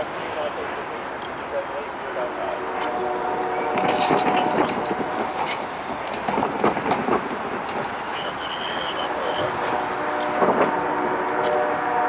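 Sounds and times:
train wheels clattering on rails: 0:02.2 - 0:12.0
wheels squealing: 0:02.6 - 0:10.8.

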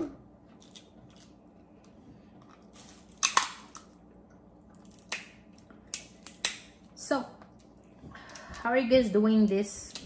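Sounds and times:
close-up eating sounds: 0:00.2 - 0:08.6
shell cracking: 0:04.8 - 0:06.8.

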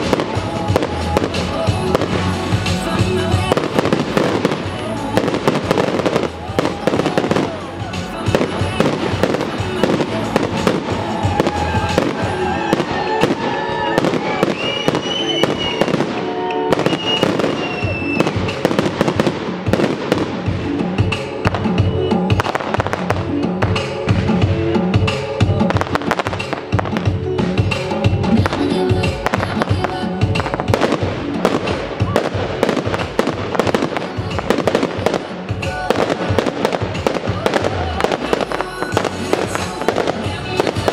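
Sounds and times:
fireworks bangs: 0:00.0 - 0:40.9
music soundtrack: 0:00.0 - 0:40.9
firework shells bursting: 0:08.2 - 0:23.9.

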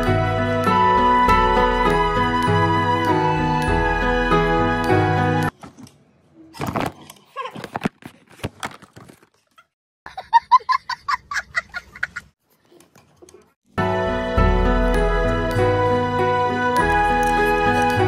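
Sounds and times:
young child laughing: 0:10.1 - 0:12.3.

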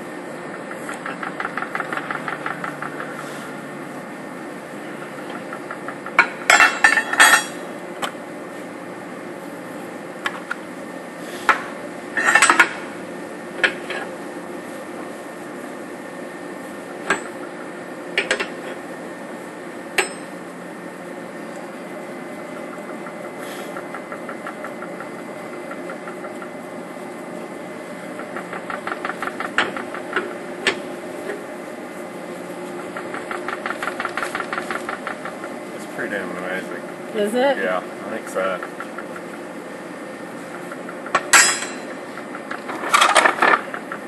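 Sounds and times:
steady machine hum: 0:00.0 - 0:44.0
metal clanks of wrench: 0:41.4 - 0:41.9.

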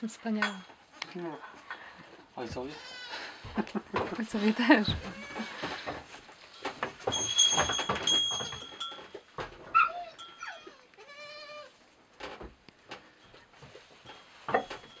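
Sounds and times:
goat kids bleating: 0:02.7 - 0:03.4, 0:10.0 - 0:11.8
rustles and knocks: 0:03.4 - 0:10.8, 0:11.9 - 0:15.0.

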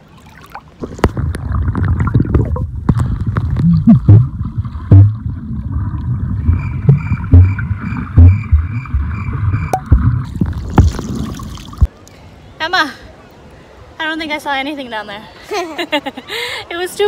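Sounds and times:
underwater rumble of moving water: 0:00.8 - 0:11.9
heavy low thumps: 0:02.2 - 0:05.4, 0:06.3 - 0:10.3.

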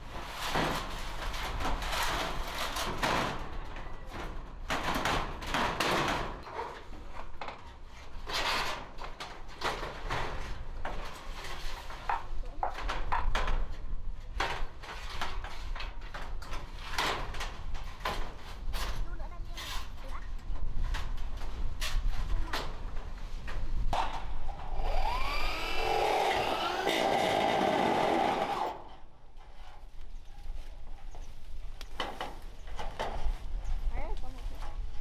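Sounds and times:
metal roofing sheets scraping: 0:00.0 - 0:23.8.

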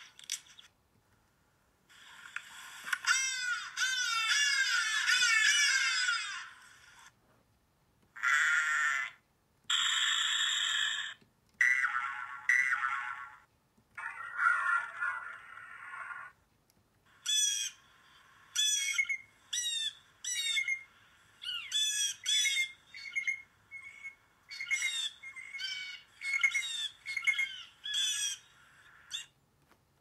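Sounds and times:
blue jay calling: 0:17.2 - 0:29.3.

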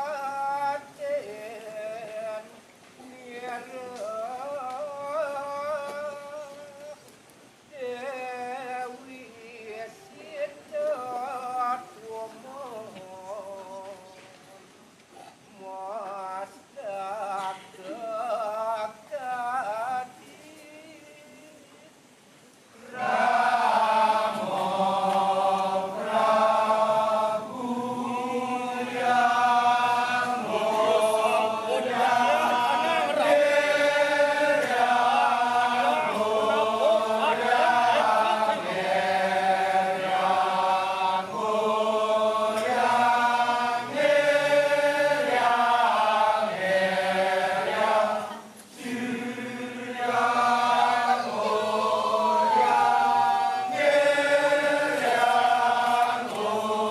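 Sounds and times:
chorus of men chanting: 0:22.8 - 0:56.9.

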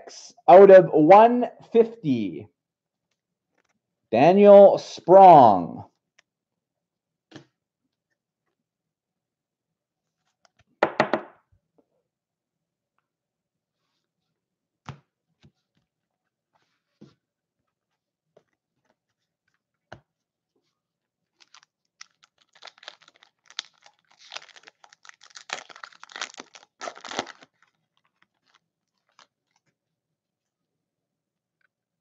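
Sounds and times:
foil wrapper tearing and crinkling: 0:21.4 - 0:29.6.

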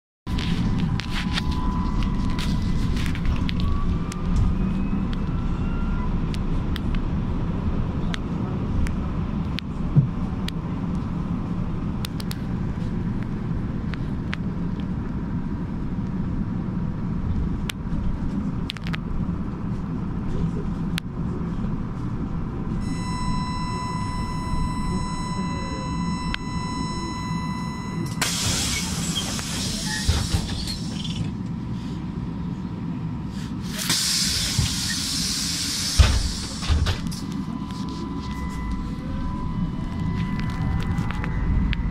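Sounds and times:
trolleybus low rumble: 0:00.3 - 0:41.9
steady electronic tone: 0:22.8 - 0:29.2, 0:36.0 - 0:41.9.

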